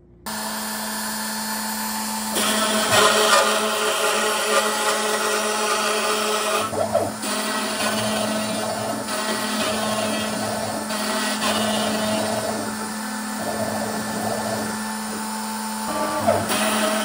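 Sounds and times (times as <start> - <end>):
router bit cutting board: 0.3 - 17.0
router motor running: 0.3 - 17.0.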